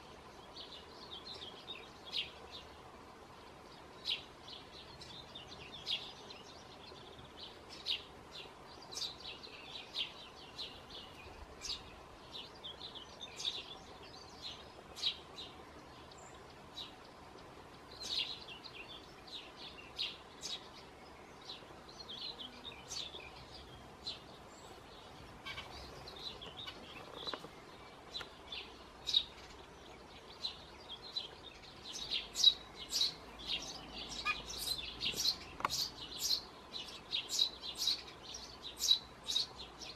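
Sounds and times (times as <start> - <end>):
nestling begging chirps: 30.4 - 39.9.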